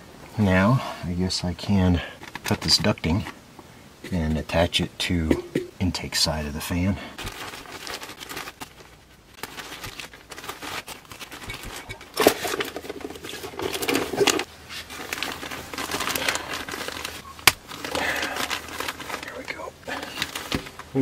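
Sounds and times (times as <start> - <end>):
foil duct crinkling and rustling: 2.0 - 3.4, 6.7 - 21.0.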